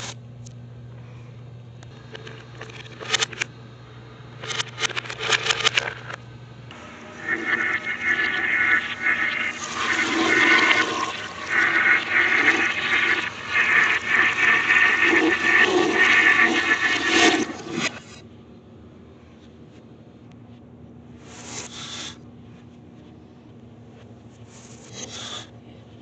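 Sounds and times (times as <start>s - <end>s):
reversed toilet flush: 6.7s - 18.1s.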